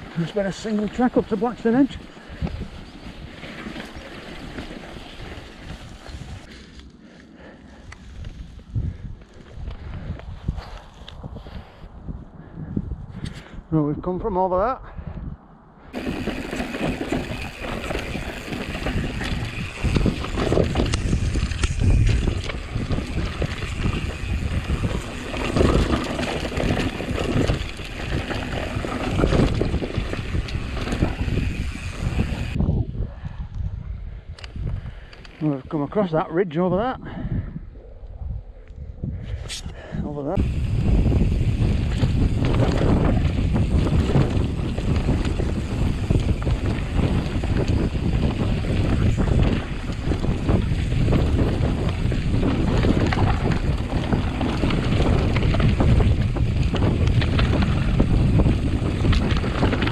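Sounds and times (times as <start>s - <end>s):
tyres rumbling on rough ground: 0.0s - 6.6s, 15.9s - 32.7s, 39.8s - 59.9s
mountain bike rattling: 0.0s - 11.8s, 15.9s - 32.6s, 39.3s - 59.9s
wind buffeting microphone: 0.0s - 59.9s.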